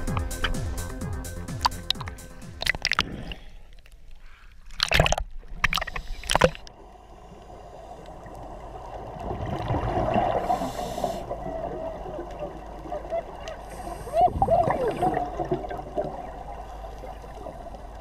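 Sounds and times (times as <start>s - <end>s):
seawater sloshing and gurgling: 4.5s - 6.7s, 8.3s - 18.0s
muffled underwater bubbling: 7.8s - 18.0s.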